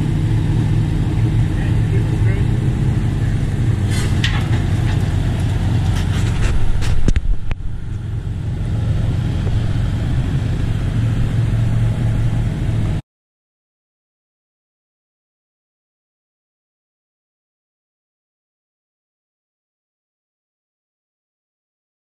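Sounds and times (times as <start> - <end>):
pickup truck engine rumbling: 0.0 - 13.0.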